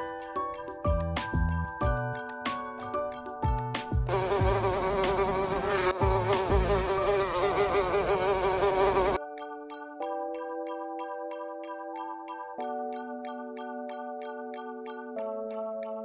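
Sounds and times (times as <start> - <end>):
fly buzzing: 4.1 - 9.2.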